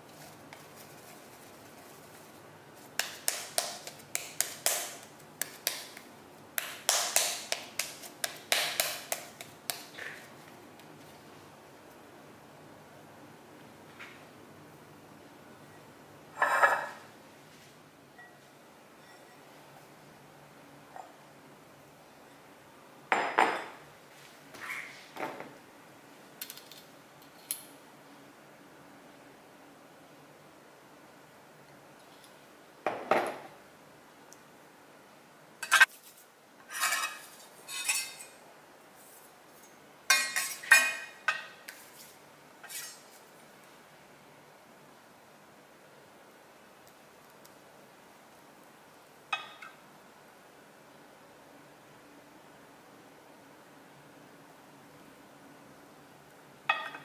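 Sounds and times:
hands patting dough: 2.8 - 11.0
light glass clinks: 19.0 - 19.4.

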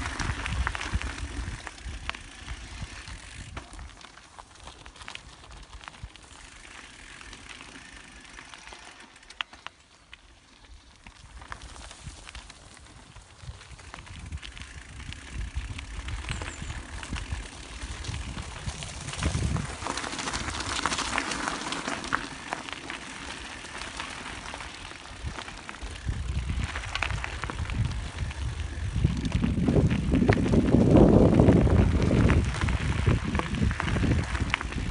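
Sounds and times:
wind rumble on microphone: 0.0 - 4.0, 11.1 - 21.2, 24.4 - 34.9
tyres crunching on dirt: 0.0 - 34.9.

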